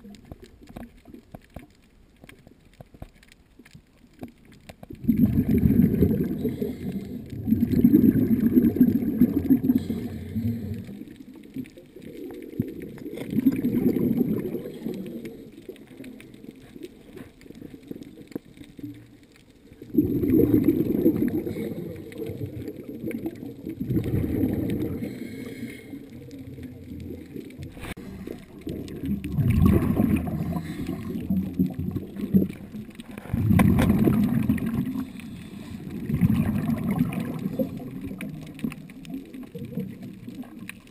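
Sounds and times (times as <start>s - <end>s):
muffled underwater breath bubbling: 5.0s - 11.5s, 12.5s - 18.0s, 19.8s - 40.0s.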